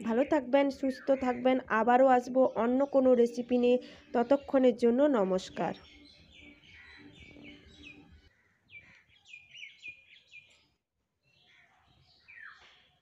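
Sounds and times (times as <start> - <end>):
faint bird chirps: 11.3 - 13.0.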